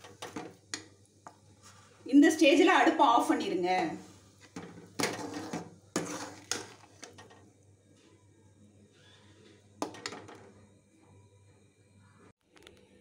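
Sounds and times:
metal spatula scraping pan: 0:04.5 - 0:07.2.

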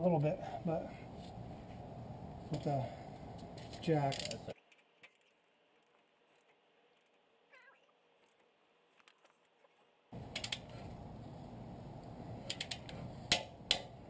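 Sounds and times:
steady background noise: 0:00.0 - 0:07.3, 0:10.0 - 0:14.0
hand tools clicking and clacking: 0:03.6 - 0:05.3, 0:12.5 - 0:13.9.

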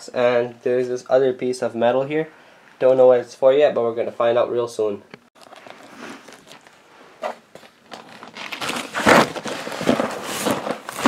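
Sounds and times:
packaging rustling and crinkling: 0:05.4 - 0:11.0.

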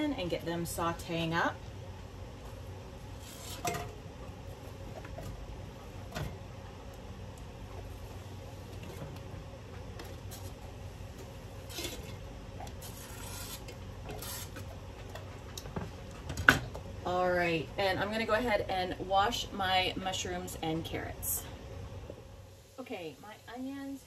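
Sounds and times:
onions scraped off cutting board: 0:03.2 - 0:03.7, 0:12.8 - 0:14.6.

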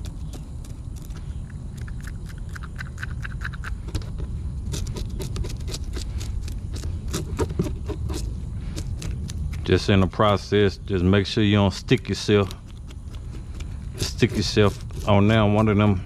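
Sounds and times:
steady low rumble: 0:00.0 - 0:16.0
knife scraping fish scales: 0:04.7 - 0:10.5, 0:11.8 - 0:16.0.

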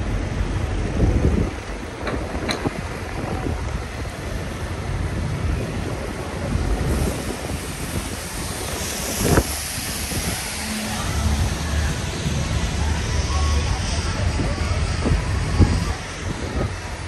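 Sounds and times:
traffic on wet road: 0:00.0 - 0:17.0
wind rumble on microphone: 0:00.0 - 0:17.0
hiss: 0:05.6 - 0:17.0.

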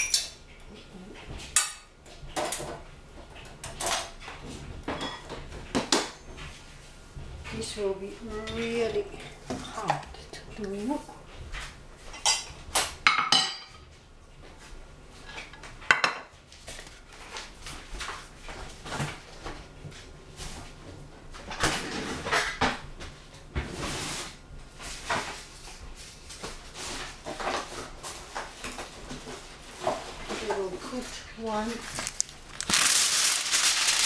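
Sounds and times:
dishes and utensils clinking: 0:00.0 - 0:00.4, 0:04.9 - 0:06.5, 0:12.1 - 0:13.9.

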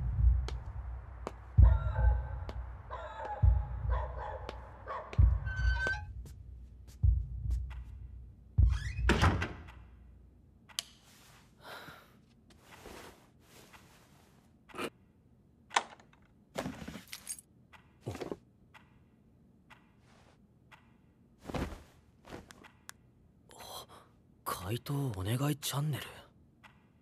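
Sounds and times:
door shutting with a thunk: 0:08.6 - 0:09.6.

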